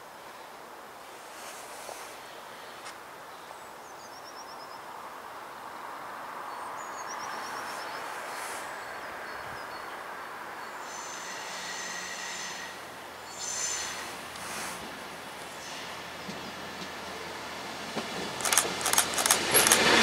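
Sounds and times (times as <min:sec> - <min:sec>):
train wheels rolling on rail: 0:10.6 - 0:20.0
train wheel squeal: 0:10.8 - 0:14.9.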